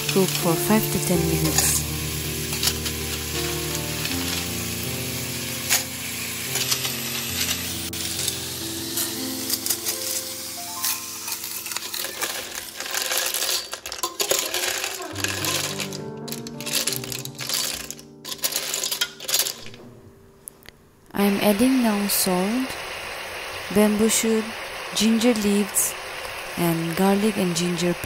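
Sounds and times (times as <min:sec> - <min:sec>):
soft background music: 0:00.0 - 0:13.4, 0:15.0 - 0:22.8
snails sizzling in oil: 0:00.0 - 0:19.7, 0:21.2 - 0:28.0
shells clicking against pot: 0:10.8 - 0:19.7.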